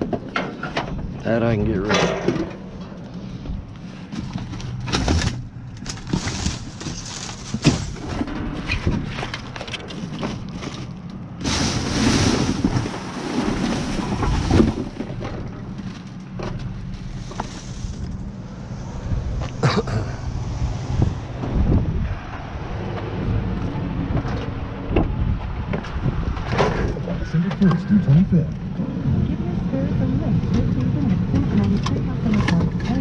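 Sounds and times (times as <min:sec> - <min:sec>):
plastic bags rustling: 0:04.4 - 0:08.3, 0:09.4 - 0:15.2, 0:16.8 - 0:18.2.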